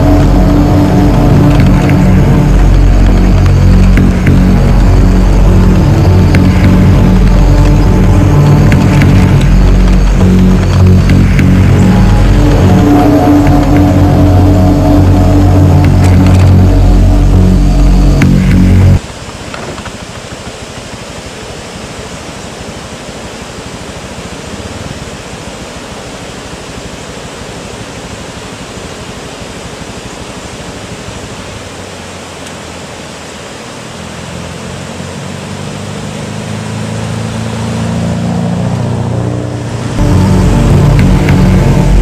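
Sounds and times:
vehicle engine approaching: 0:00.0 - 0:19.2, 0:33.8 - 0:42.0
steady rushing noise: 0:00.0 - 0:42.0.

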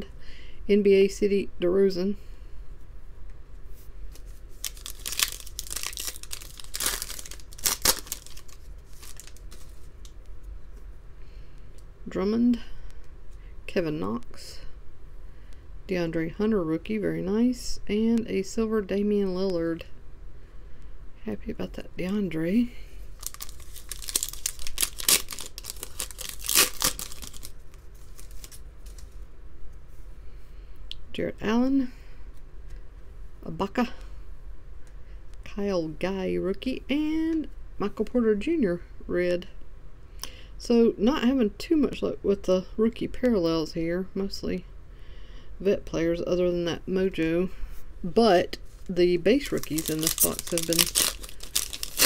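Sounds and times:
foil wrapper crinkling: 0:04.1 - 0:10.1, 0:23.1 - 0:29.2, 0:48.7 - 0:52.0
cards rustling: 0:04.1 - 0:10.2, 0:23.1 - 0:29.2, 0:48.7 - 0:52.0.

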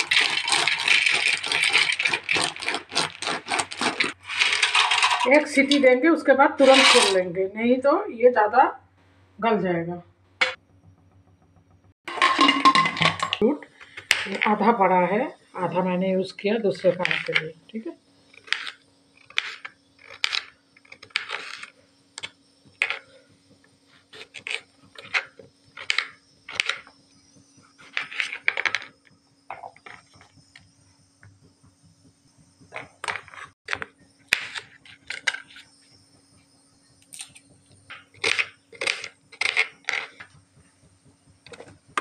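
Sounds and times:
faint steady hum: 0:00.0 - 0:42.0.

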